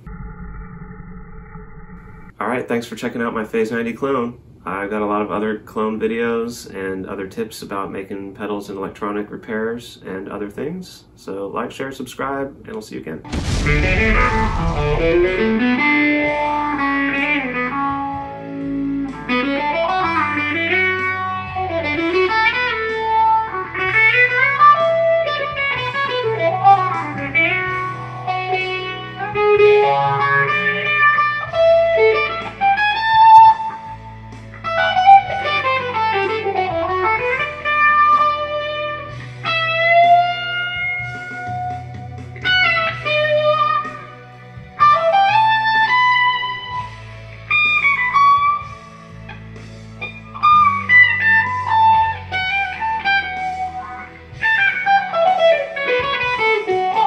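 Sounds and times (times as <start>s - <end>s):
sustained bass notes: 0.0s - 2.4s, 13.3s - 19.1s
electric guitar lead melody: 13.4s - 57.0s.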